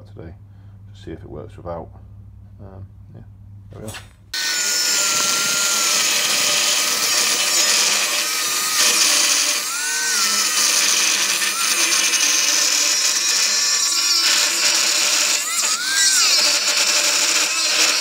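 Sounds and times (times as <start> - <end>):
angle grinder cutting steel: 4.4 - 18.0.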